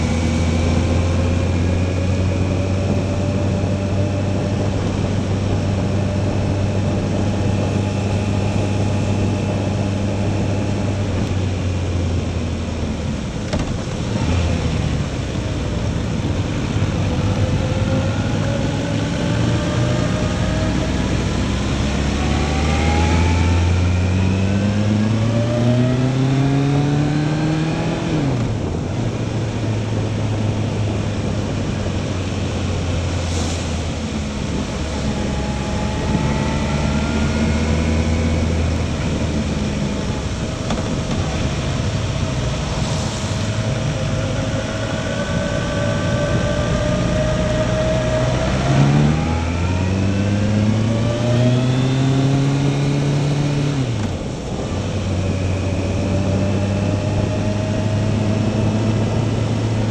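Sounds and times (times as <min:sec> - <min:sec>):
motorcycle engine pulling uphill: 0:00.0 - 0:59.9
wet road noise: 0:00.0 - 0:59.9
wind rushing: 0:25.7 - 0:59.9.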